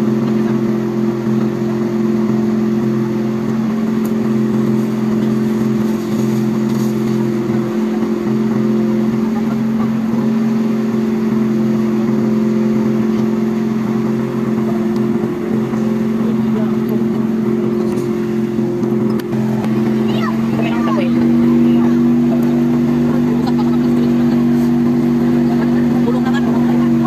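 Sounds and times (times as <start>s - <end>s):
fire truck engine droning: 0.0s - 27.0s.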